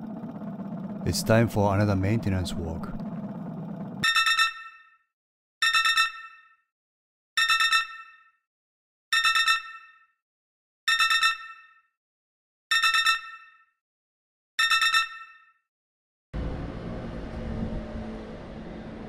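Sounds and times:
low hum: 0.0s - 4.0s, 16.4s - 19.0s
pulsing bell-like electronic beep: 4.0s - 5.0s, 5.6s - 6.6s, 7.4s - 8.4s, 9.2s - 10.1s.

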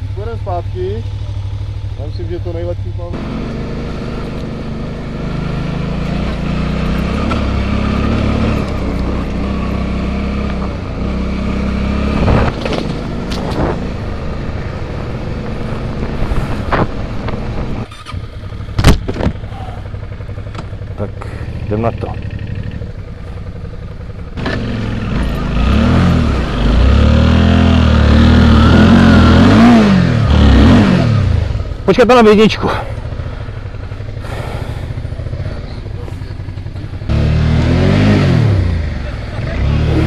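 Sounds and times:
motorcycle engine revving: 0.0s - 40.0s
sharp knocks and bumps: 12.2s - 13.9s, 18.8s - 19.5s.

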